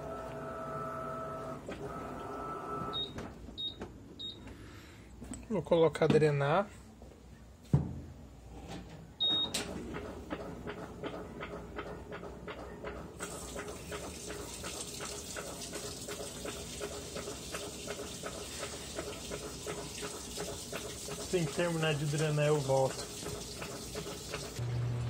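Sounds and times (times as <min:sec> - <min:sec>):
washing machine beep: 0:00.0 - 0:04.5, 0:09.2 - 0:09.8
drain pump running with ticks: 0:09.9 - 0:25.0.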